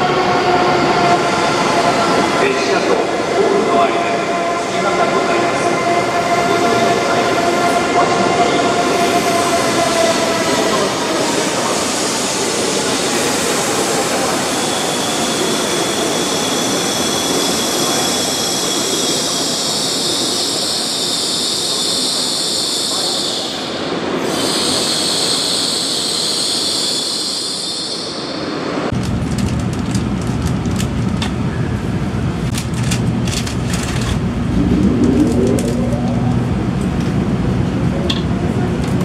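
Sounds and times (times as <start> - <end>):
train wheels rumbling on rail: 28.9 - 39.0
high electric whine: 34.0 - 37.3.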